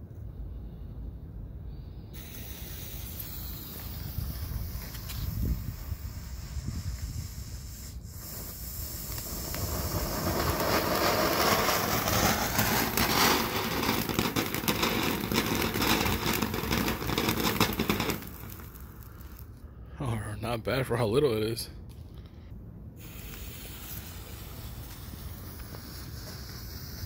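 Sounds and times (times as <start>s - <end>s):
firework fountain hissing: 2.1s - 19.6s, 23.0s - 27.0s.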